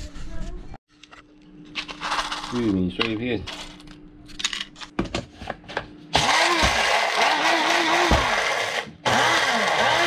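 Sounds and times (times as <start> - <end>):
electric blender grinding: 6.1 - 10.0.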